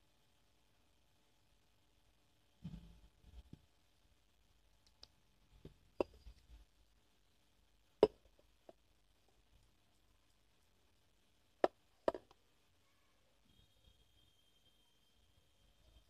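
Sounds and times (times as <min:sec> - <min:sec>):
faint high steady tone: 0:03.8 - 0:16.0.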